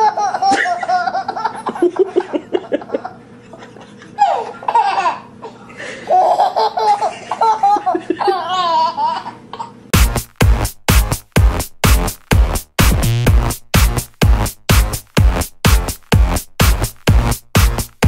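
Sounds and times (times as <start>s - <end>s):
baby laughing: 0.0s - 9.8s.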